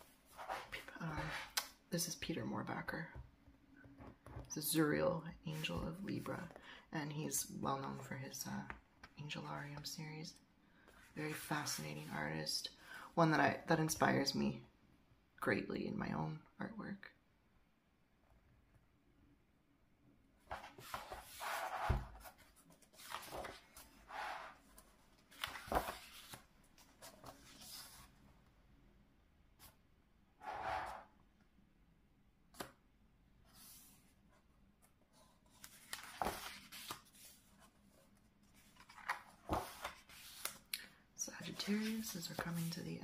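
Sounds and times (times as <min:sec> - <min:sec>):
book pages turning: 0:20.5 - 0:28.2, 0:34.8 - 0:40.7, 0:41.4 - 0:43.0.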